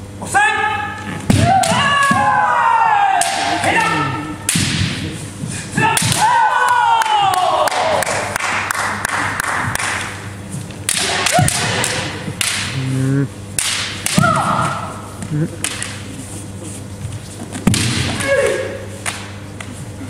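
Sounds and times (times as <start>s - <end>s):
people shouting: 0.4s - 4.4s, 5.7s - 8.3s, 10.9s - 12.2s, 14.0s - 15.0s, 18.1s - 18.9s
bamboo swords clacking: 10.9s - 12.8s, 13.6s - 14.8s, 15.6s - 16.0s.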